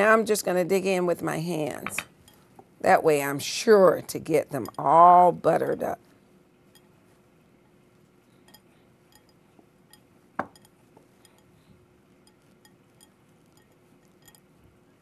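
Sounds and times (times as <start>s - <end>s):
fingers clicking against glass bowl: 8.5s - 11.6s, 12.2s - 14.6s
knock on glass bowl: 10.4s - 10.6s.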